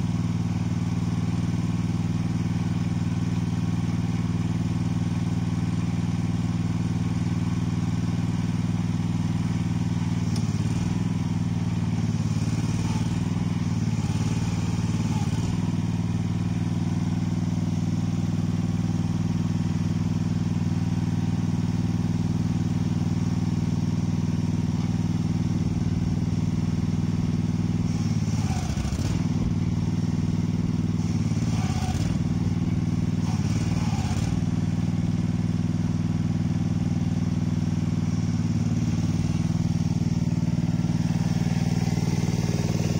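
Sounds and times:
small engine idling: 0.0s - 42.9s.

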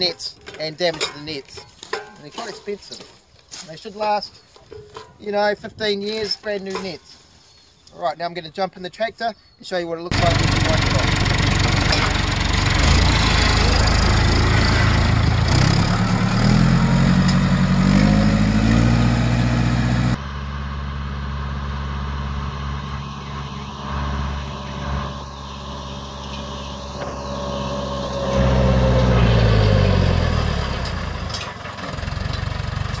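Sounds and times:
tractor diesel engine running: 10.1s - 33.0s.

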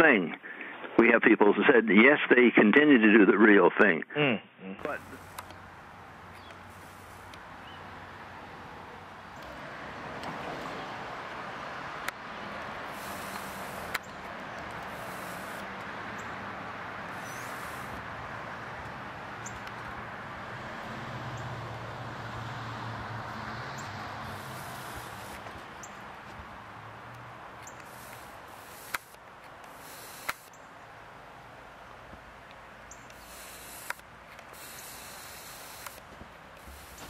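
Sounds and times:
outdoor rushing noise: 4.8s - 37.0s
sharp clicks: 12.0s - 15.9s, 27.1s - 30.6s, 32.4s - 37.0s.

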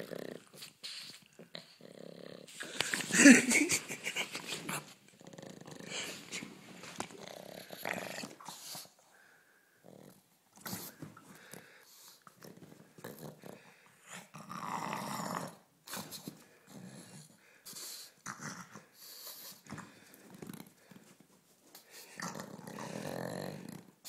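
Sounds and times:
dog growling and snorting: 0.0s - 0.8s, 1.4s - 3.5s, 4.1s - 8.6s, 12.4s - 17.3s, 18.2s - 19.0s, 22.1s - 24.0s.

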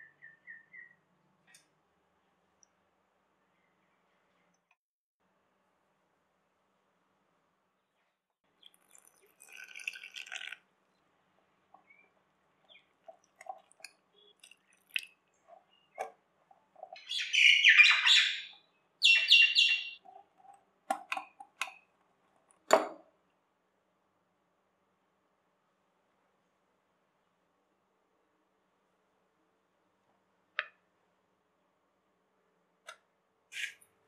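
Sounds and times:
loud high chirping: 17.0s - 20.0s.

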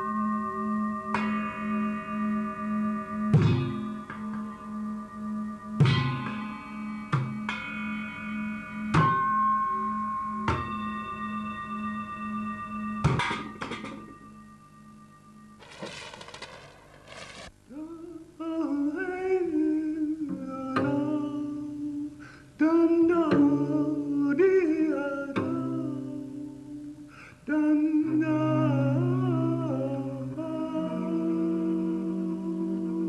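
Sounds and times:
low sustained notes: 0.0s - 20.5s
short rushing noise: 15.6s - 17.6s
voice humming a melody: 17.7s - 33.0s.

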